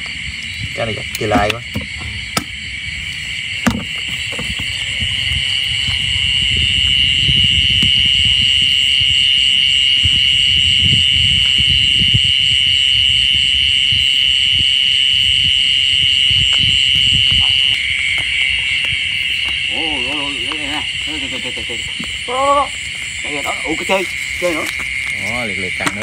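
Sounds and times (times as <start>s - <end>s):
insect chorus buzzing: 0.0s - 26.0s.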